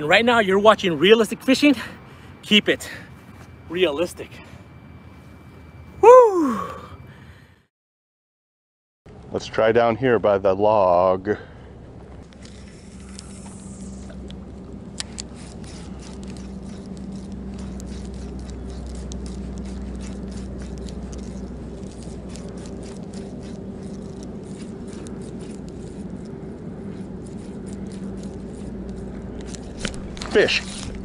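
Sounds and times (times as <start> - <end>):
rod and line handling clicks: 12.2 - 26.3
fishing reel whirring: 12.4 - 31.0.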